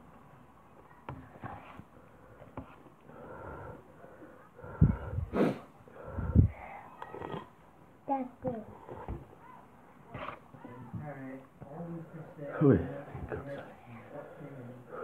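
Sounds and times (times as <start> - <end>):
breathy blasts on microphone: 4.6 - 6.7.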